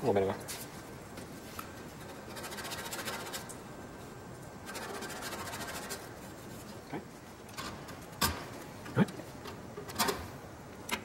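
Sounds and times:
hands scratching on metal: 2.0s - 3.5s, 4.7s - 6.8s.

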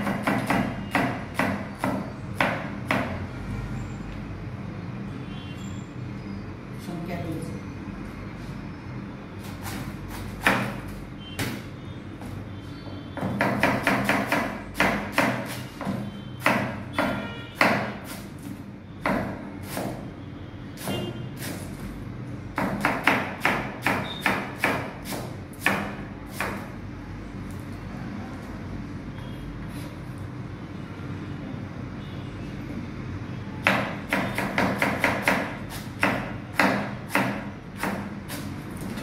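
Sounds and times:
knife chopping on cutting board: 9.4s - 11.6s, 13.2s - 20.0s, 22.6s - 26.7s, 33.6s - 39.0s.

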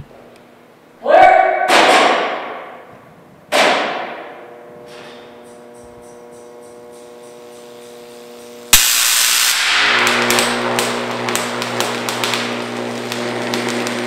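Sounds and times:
steady electrical hum: 0.0s - 14.0s
loud clunk with echo: 1.6s - 2.9s, 3.5s - 5.6s
high-voltage arc buzzing: 3.5s - 14.0s.

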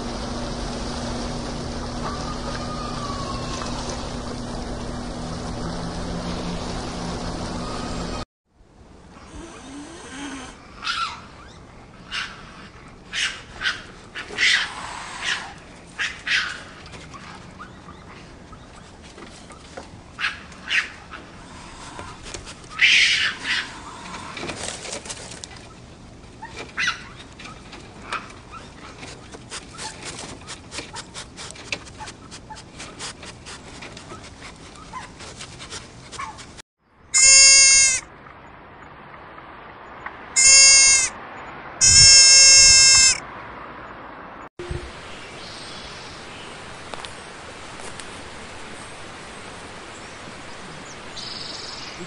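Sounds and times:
constant low hum: 0.0s - 36.6s
meerkats squeaking and chirping: 41.8s - 43.2s
rushing water: 44.7s - 52.0s.

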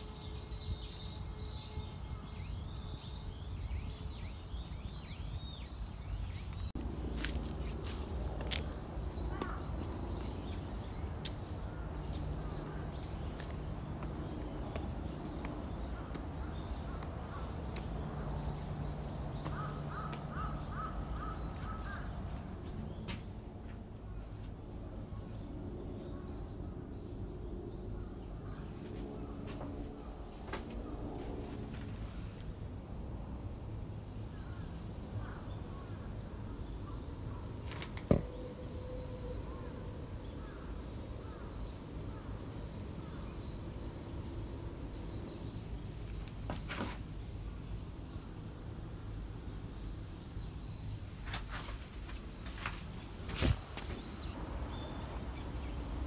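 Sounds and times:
steady low rumble: 6.0s - 35.3s
crow cawing: 19.5s - 22.1s.

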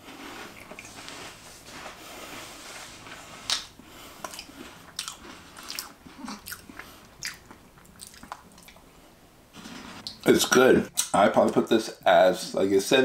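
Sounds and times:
chewing mouth noise: 0.1s - 1.4s, 3.5s - 8.9s
cookie crunching: 3.0s - 8.8s.

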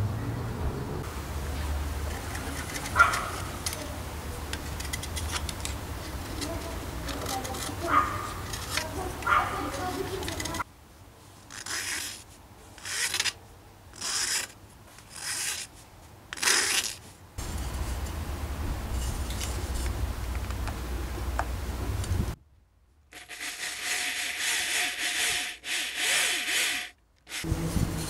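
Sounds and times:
metal file rasping on wood: 7.2s - 10.6s, 23.2s - 27.5s.

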